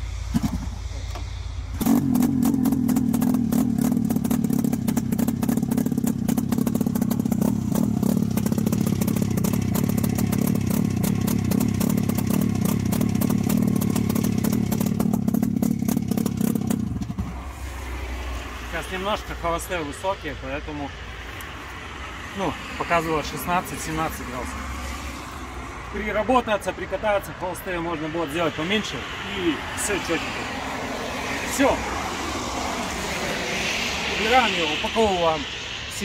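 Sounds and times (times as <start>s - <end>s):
snowmobile engine running: 0.1s - 17.7s.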